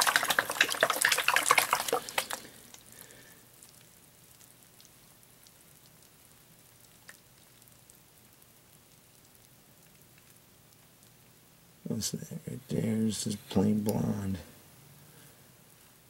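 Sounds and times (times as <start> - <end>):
water splashing in a pan: 0.0 - 3.3.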